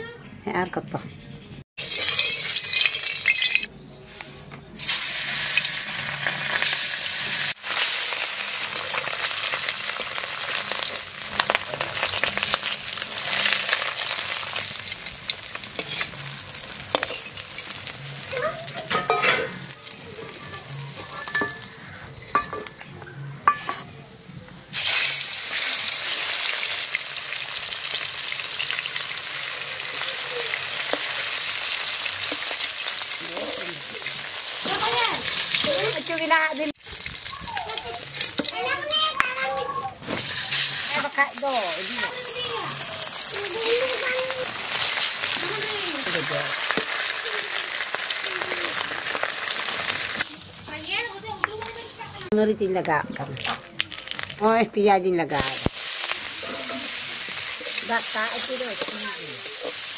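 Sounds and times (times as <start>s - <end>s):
fish sizzling in hot oil: 1.8s - 3.7s, 4.8s - 22.4s, 24.7s - 39.0s, 40.0s - 52.3s, 55.3s - 59.9s
metal spatula scraping wok: 1.8s - 4.2s, 4.8s - 19.8s, 23.4s - 23.9s, 37.9s - 38.6s, 55.4s - 59.9s.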